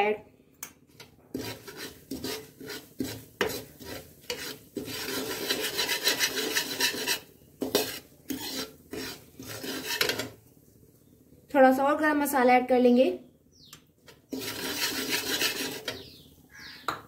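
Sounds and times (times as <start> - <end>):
metal spatula scraping a pan: 0.9 - 10.4, 14.0 - 16.3.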